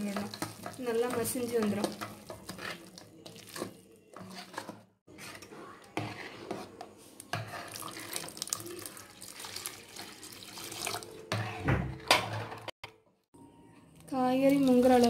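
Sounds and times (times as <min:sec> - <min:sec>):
metal ladle scraping pot: 0:00.0 - 0:08.5, 0:10.4 - 0:12.7
water pouring into pot: 0:07.6 - 0:11.2.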